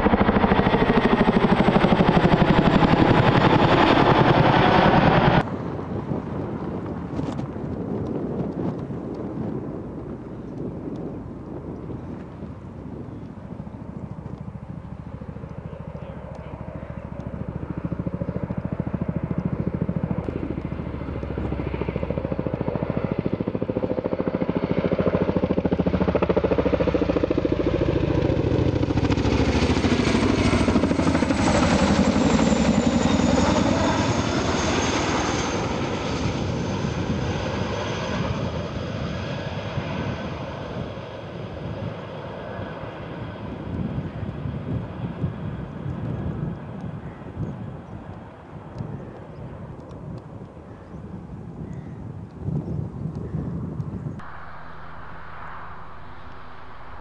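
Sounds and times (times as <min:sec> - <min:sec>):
helicopter rotor chopping: 0:00.0 - 0:46.9, 0:48.1 - 0:57.0
helicopter turbine whine: 0:00.0 - 0:57.0.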